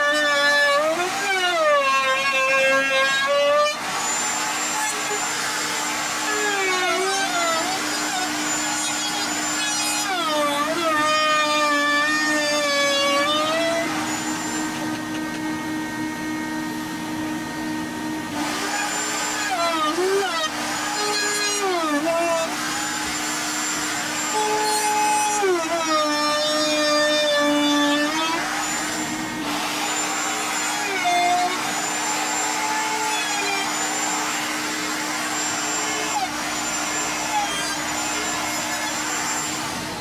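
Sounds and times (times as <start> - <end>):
vacuum whine: 0.0 - 40.0
wood router motor: 0.0 - 40.0.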